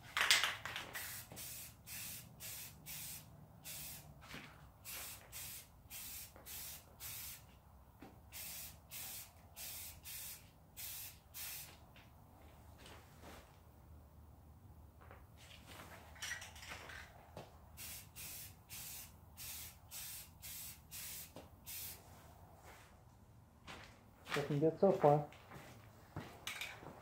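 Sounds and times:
aerosol can spraying bursts: 0.9s - 4.1s, 4.8s - 7.5s, 8.3s - 11.8s, 17.8s - 22.0s.

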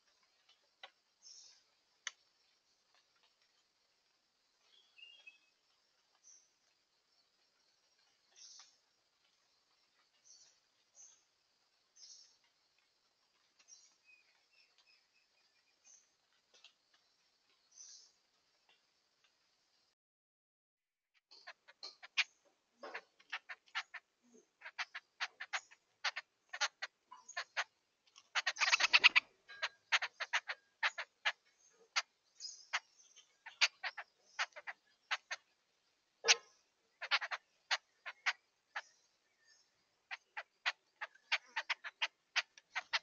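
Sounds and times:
birds chattering harsh clicking calls: 21.3s - 43.0s.

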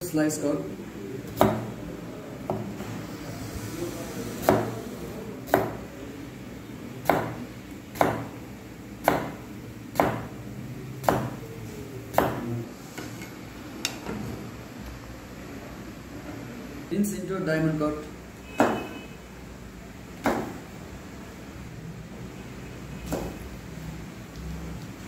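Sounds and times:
knife chopping on plastic board: 1.4s - 1.7s, 4.4s - 4.8s, 5.5s - 5.8s, 7.0s - 7.4s, 8.0s - 8.3s, 9.0s - 10.3s, 11.0s - 11.4s, 12.1s - 12.5s, 18.6s - 18.9s, 20.2s - 20.6s, 23.0s - 23.4s.

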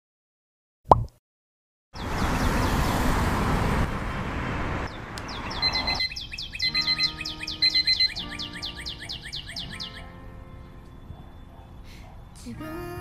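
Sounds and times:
cartoon pop: 0.9s - 1.2s
birds chirping: 2.0s - 3.4s, 4.0s - 12.9s
city traffic noise: 2.0s - 13.0s.

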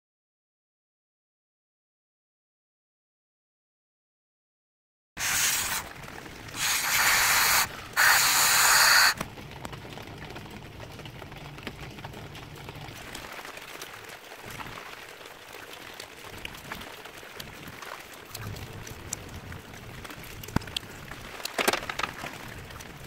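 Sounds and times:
spray nozzle hissing blasts: 5.2s - 5.9s, 6.5s - 9.2s.

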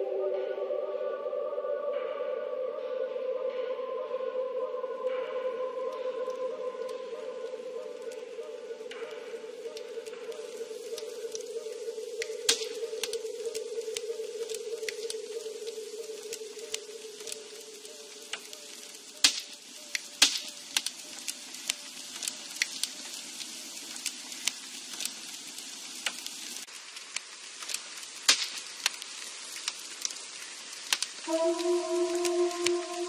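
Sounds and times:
sparse crackling: 5.0s - 33.0s
sustained musical notes: 31.3s - 33.0s.

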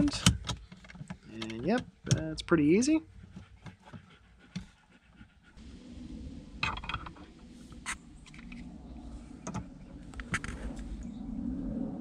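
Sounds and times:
steady low rumble: 5.0s - 12.0s.

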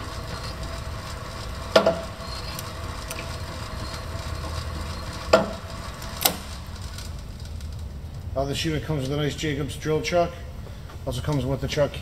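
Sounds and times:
drill press motor hum: 0.0s - 8.4s.

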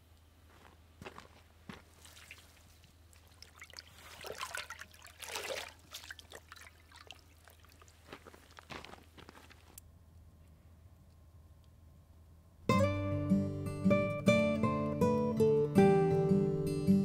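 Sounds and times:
small splashes: 1.8s - 8.7s
liquid sloshing in metal bowl: 2.0s - 8.1s.

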